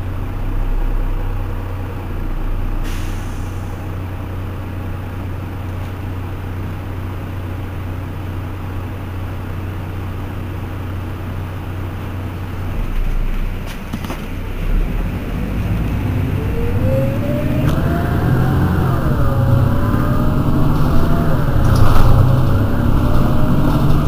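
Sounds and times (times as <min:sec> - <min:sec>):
bus diesel engine drone: 0:00.0 - 0:24.0
transmission whine: 0:12.5 - 0:24.0.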